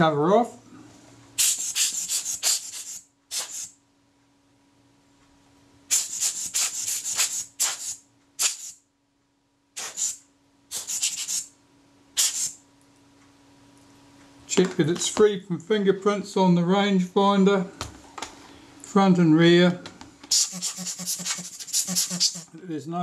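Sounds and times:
hissing rubbing noise: 0:01.4 - 0:03.7, 0:05.9 - 0:08.8, 0:09.8 - 0:11.5, 0:20.3 - 0:22.5.

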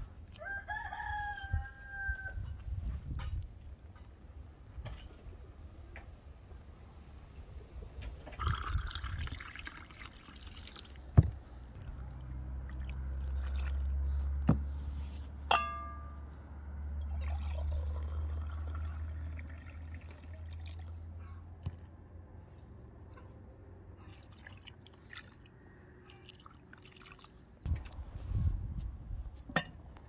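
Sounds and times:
water pouring from pitcher: 0:08.3 - 0:14.1, 0:17.0 - 0:21.0, 0:24.1 - 0:25.5, 0:26.2 - 0:27.9
glass clinking: 0:15.5 - 0:16.2.

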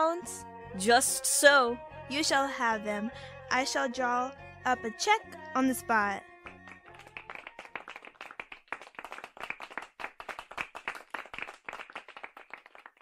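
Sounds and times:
people clapping: 0:06.4 - 0:13.0.

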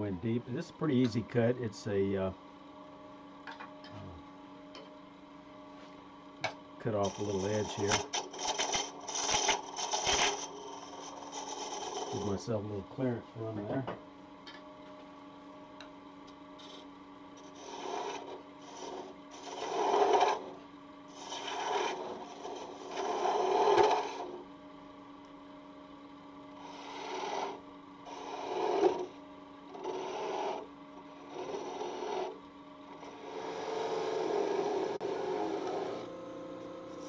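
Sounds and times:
wood lathe humming: 0:00.0 - 0:02.4, 0:05.9 - 0:13.8, 0:16.3 - 0:25.2, 0:26.4 - 0:37.0
chisel scraping hiss: 0:06.9 - 0:12.5, 0:16.6 - 0:24.4, 0:26.6 - 0:29.2, 0:29.8 - 0:32.4, 0:33.0 - 0:36.1.

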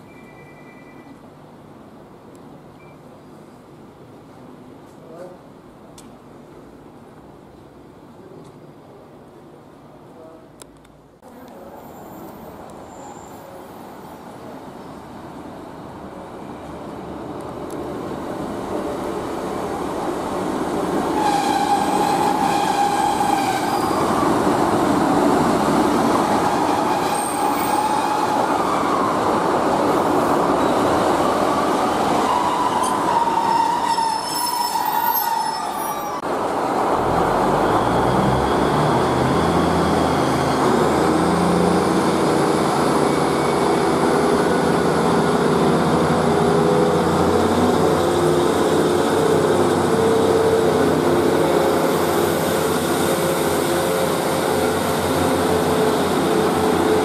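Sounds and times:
train brakes squealing: 0:00.0 - 0:01.2, 0:11.7 - 0:14.2, 0:21.1 - 0:24.3, 0:26.5 - 0:29.1, 0:32.2 - 0:36.2
train diesel engines revving: 0:18.2 - 0:57.0.

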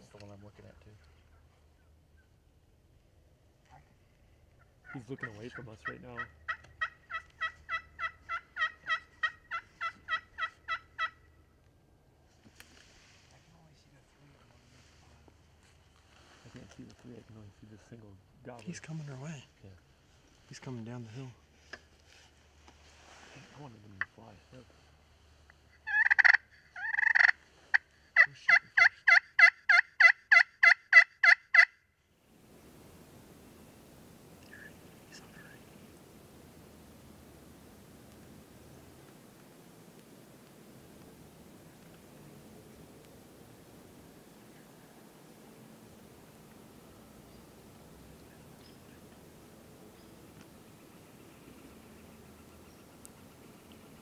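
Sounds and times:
wild turkey yelps: 0:04.6 - 0:11.4, 0:25.7 - 0:31.8, 0:34.5 - 0:35.7.

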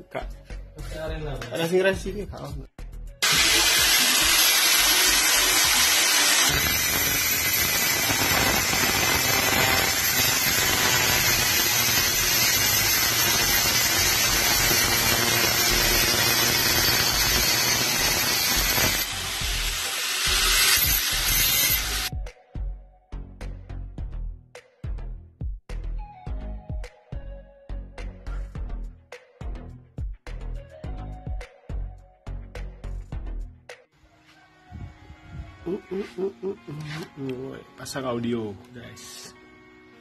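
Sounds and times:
angle grinder grinding steel: 0:03.2 - 0:22.1.

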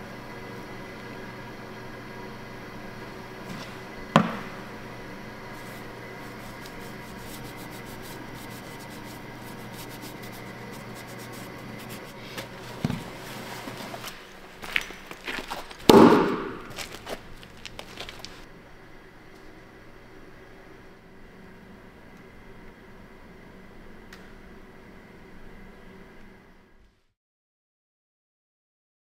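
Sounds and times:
workshop hum: 0:00.0 - 0:27.1
hatchet striking wooden stump: 0:15.9 - 0:16.8.

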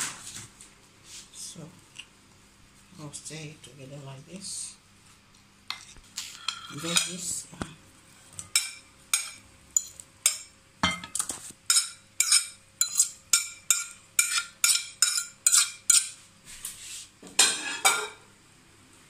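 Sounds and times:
fork clinking on ceramic plate: 0:05.7 - 0:07.2, 0:08.5 - 0:16.2.

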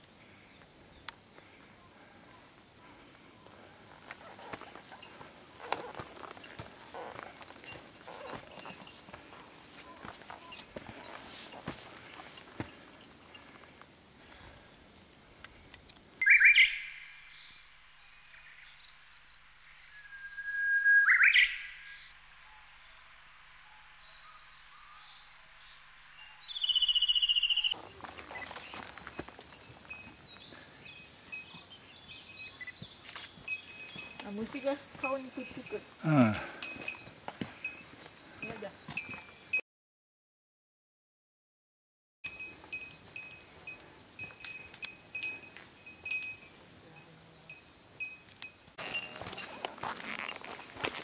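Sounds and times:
songbirds singing: 0:00.0 - 0:14.7, 0:23.6 - 0:39.6, 0:42.3 - 0:51.0
bell jingling with footsteps: 0:02.8 - 0:14.6, 0:27.7 - 0:39.6, 0:42.3 - 0:51.0
rustling: 0:02.9 - 0:16.0, 0:48.1 - 0:51.0.

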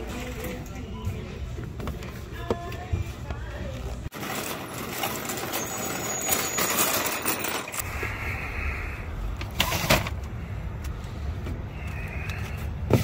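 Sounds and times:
shopping cart rattling on pavement: 0:00.0 - 0:00.9, 0:04.1 - 0:07.8.

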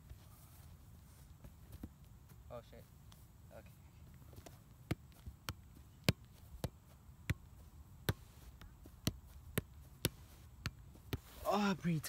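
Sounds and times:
soccer ball thudding on foot: 0:04.3 - 0:11.4.

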